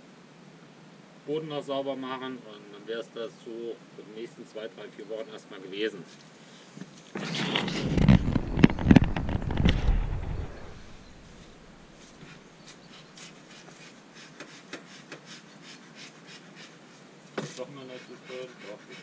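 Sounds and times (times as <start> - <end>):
faint clicks and rustles: 6.0 - 15.2
camera handling noise: 6.8 - 11.2.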